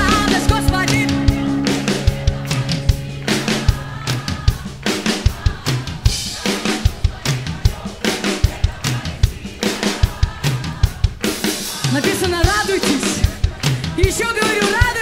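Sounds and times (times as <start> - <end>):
wavering lead melody: 0.0 - 6.2
drum kit kick and snare: 0.0 - 15.0
live band playing: 0.0 - 15.0.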